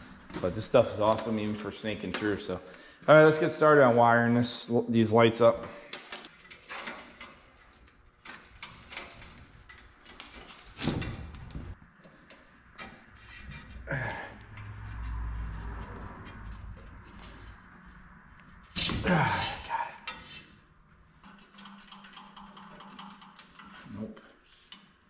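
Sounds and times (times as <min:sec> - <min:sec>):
metal scrapes: 0:06.2 - 0:10.8, 0:12.0 - 0:24.9
clicks and knocks of metal fittings: 0:21.2 - 0:23.9.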